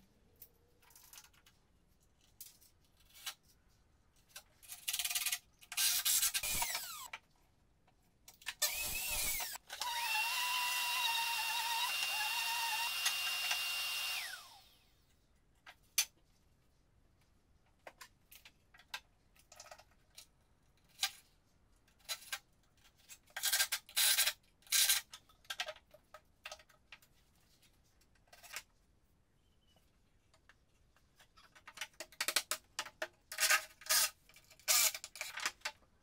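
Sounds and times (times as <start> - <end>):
power drill spinning down: 5.8 - 7.1, 8.6 - 14.9.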